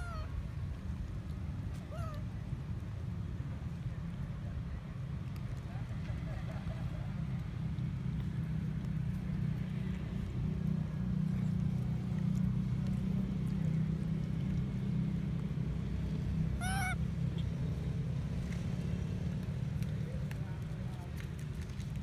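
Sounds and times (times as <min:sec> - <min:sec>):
baby monkey squealing: 0:00.0 - 0:00.3, 0:01.9 - 0:02.2, 0:16.6 - 0:17.0.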